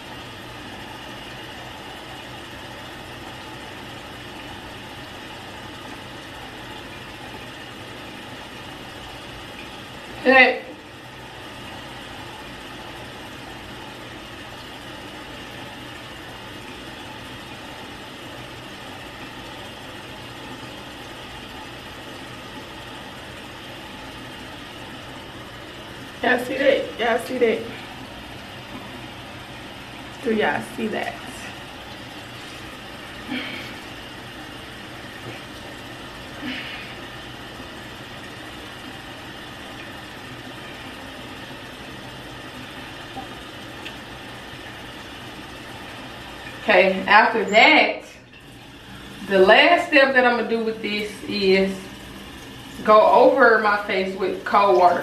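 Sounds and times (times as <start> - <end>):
room hum and hiss: 0.0 - 55.0.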